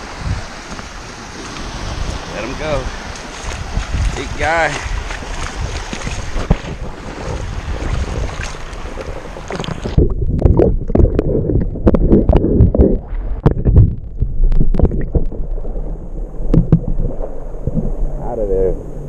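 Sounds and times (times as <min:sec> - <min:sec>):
shallow surf: 0:00.0 - 0:19.0
underwater sloshing and gurgling: 0:00.0 - 0:19.0
wind on microphone: 0:00.0 - 0:19.0
underwater clicks and knocks: 0:05.1 - 0:06.8, 0:08.3 - 0:15.6, 0:16.4 - 0:17.9.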